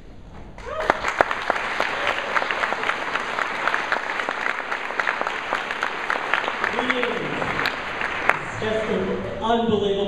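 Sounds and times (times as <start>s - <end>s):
rising shout: 0.6s - 1.1s
audience applauding: 0.6s - 9.4s.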